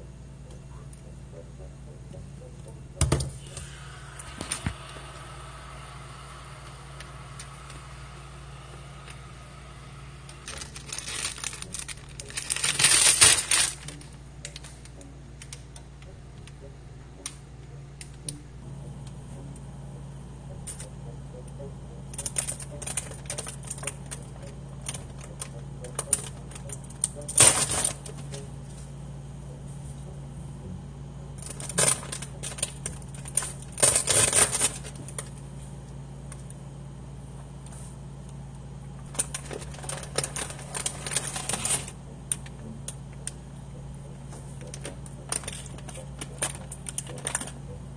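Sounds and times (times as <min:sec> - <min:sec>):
low hum: 0:00.0 - 0:47.9
plastic bag crinkling: 0:10.4 - 0:14.2, 0:39.1 - 0:42.0
rapid clicks and clattering: 0:10.5 - 0:15.6, 0:39.1 - 0:43.3.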